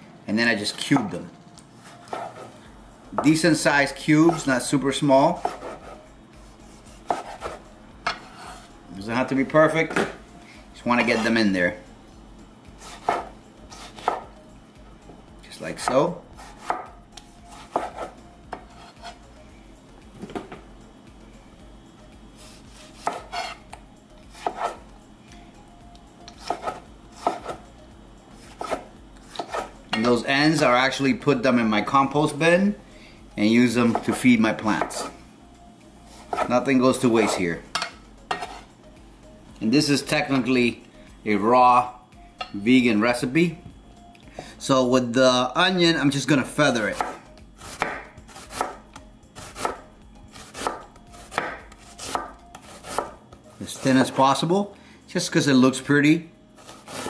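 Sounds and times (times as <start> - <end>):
knife slicing onion on board: 2.0 - 2.6, 4.2 - 4.5, 5.3 - 6.0, 6.7 - 8.6, 12.8 - 14.3, 15.8 - 16.9, 17.5 - 19.2, 22.4 - 24.8, 26.3 - 27.6, 28.4 - 29.8, 36.1 - 36.6, 37.2 - 37.4, 38.3 - 38.7, 46.9 - 48.8, 49.4 - 54.2, 56.6 - 57.0
knife slicing tomatoes: 5.3 - 6.0, 6.7 - 8.6, 17.5 - 19.2, 22.4 - 23.7, 24.3 - 24.8, 26.3 - 27.6, 28.4 - 29.7, 36.1 - 37.4.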